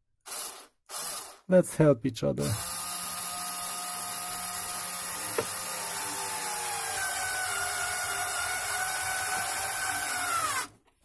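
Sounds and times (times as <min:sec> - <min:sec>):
electric screwdriver motor whine: 0:02.5 - 0:10.7.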